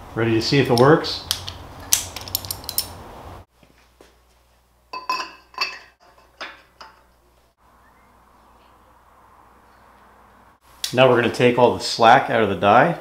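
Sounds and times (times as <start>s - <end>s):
steel tube clinking on metal: 4.9s - 7.2s.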